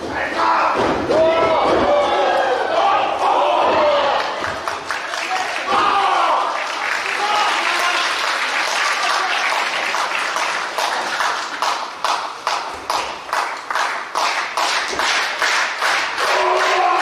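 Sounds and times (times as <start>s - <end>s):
crowd noise: 0.0s - 17.0s
crowd clapping in unison: 4.1s - 17.0s.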